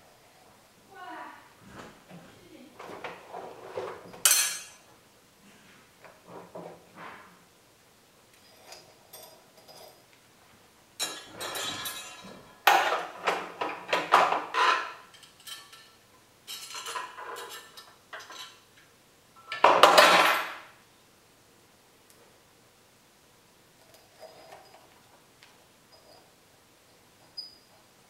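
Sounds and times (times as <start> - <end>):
tools clattering on sewing machine: 2.9 - 4.9, 11.0 - 18.7, 19.4 - 20.7, 23.8 - 25.0.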